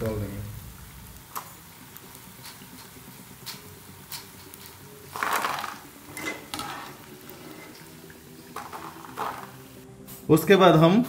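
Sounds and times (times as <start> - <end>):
fried snacks clattering onto plate: 3.5 - 7.1, 8.6 - 9.6.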